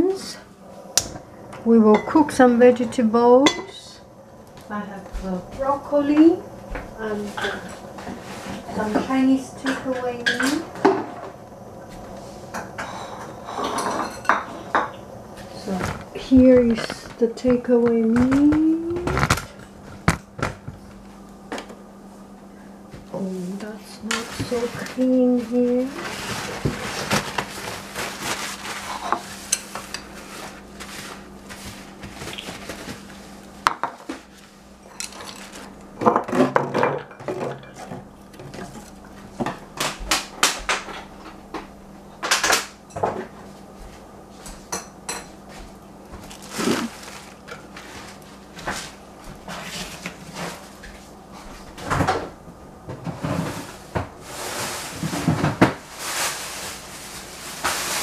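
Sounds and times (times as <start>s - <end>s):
faint steady hum: 0.0s - 58.0s
dishes clinking and knocking: 3.4s - 3.8s, 12.5s - 15.0s, 36.0s - 38.8s.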